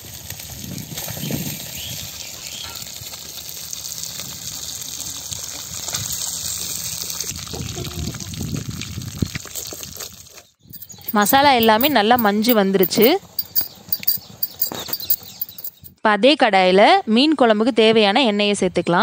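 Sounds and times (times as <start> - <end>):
fish sizzling in oil: 0.0 - 10.3.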